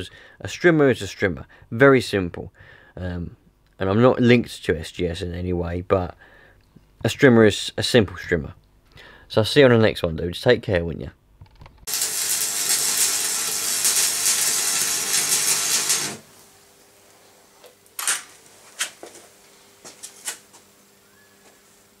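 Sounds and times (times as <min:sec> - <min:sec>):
arc welding crackling sizzle: 0:11.8 - 0:17.2.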